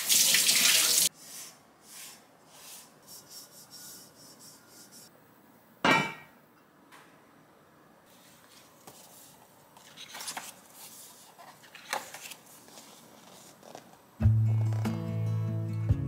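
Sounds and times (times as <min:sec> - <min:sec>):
paper pages turning: 0:08.4 - 0:14.0.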